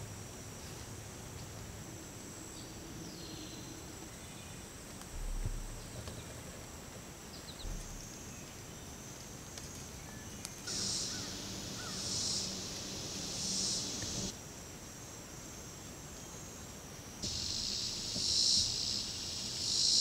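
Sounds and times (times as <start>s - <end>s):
high insect drone: 0.0s - 20.0s
low thumps: 5.1s - 6.4s, 7.6s - 8.5s
pulsing insect buzz: 7.6s - 8.4s, 10.6s - 14.3s, 17.2s - 20.0s
bird chirps: 10.0s - 14.3s.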